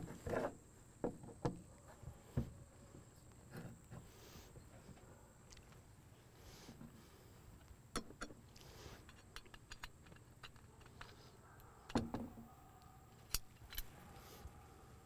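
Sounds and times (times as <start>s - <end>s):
metal parts clicking on wood: 7.6s - 12.4s, 13.1s - 14.0s.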